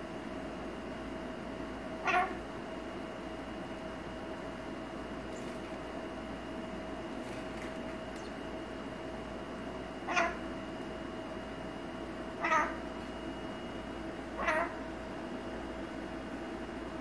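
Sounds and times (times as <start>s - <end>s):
parrot calls: 2.0s - 2.4s, 10.0s - 10.5s, 12.4s - 12.9s, 14.3s - 14.9s.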